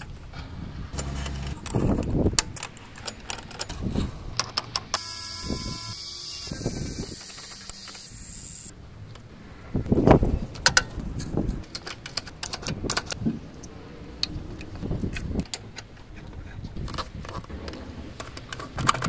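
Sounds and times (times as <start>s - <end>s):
metal clicks and rattles: 0.9s - 5.0s, 10.5s - 13.2s, 16.8s - 19.0s.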